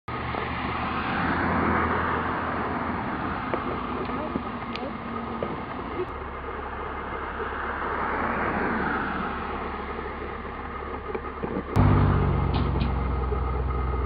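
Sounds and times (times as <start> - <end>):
fire truck engine idling: 3.6 - 14.0
low hum: 5.2 - 14.0.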